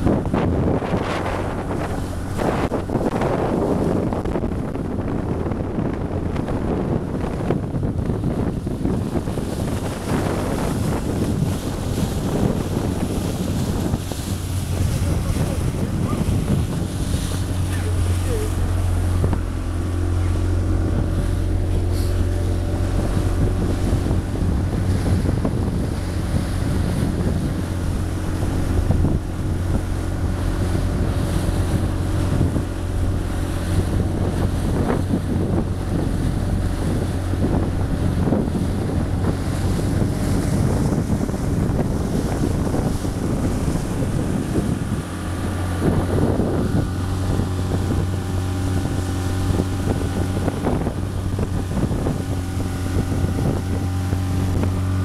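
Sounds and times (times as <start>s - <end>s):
outboard motor droning: 0.0s - 55.0s
water splashing against hull: 0.0s - 55.0s
wind buffeting microphone: 0.0s - 55.0s.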